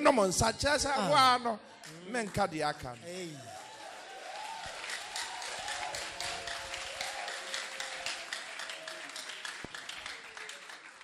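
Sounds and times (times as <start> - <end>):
congregation clapping: 1.8 - 11.0.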